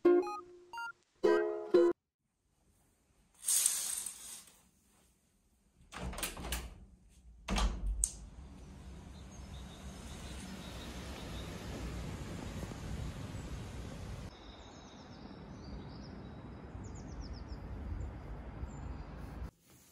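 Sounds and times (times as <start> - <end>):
door latch clicks: 5.9 - 6.8, 7.5 - 8.3
outdoor background noise: 7.5 - 19.9.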